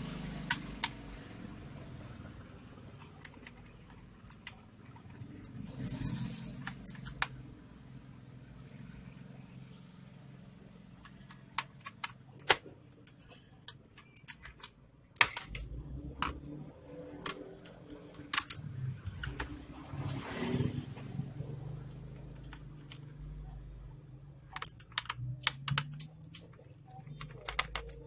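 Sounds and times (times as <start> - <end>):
tools clicking on laptop parts: 3.0 - 5.6, 6.6 - 7.4, 11.0 - 20.2, 24.5 - 28.0.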